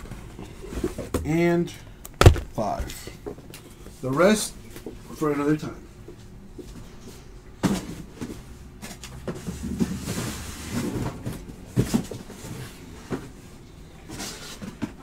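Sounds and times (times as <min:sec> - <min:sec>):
cardboard boxes knocking: 0:02.2 - 0:02.6.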